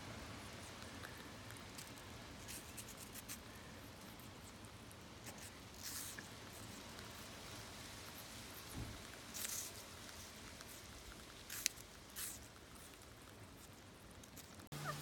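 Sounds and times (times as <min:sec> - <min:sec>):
bird beak nibbling apple: 0:00.2 - 0:15.0.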